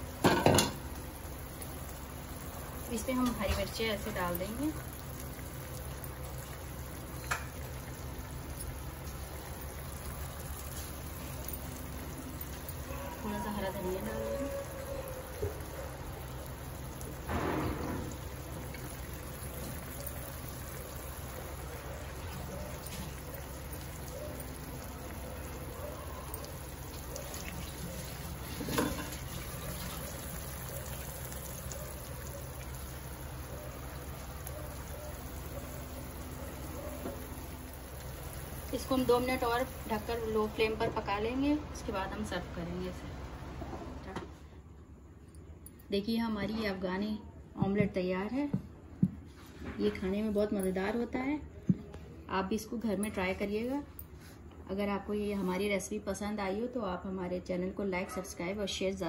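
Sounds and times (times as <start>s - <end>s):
omelette sizzling in frying pan: 0.0s - 41.1s.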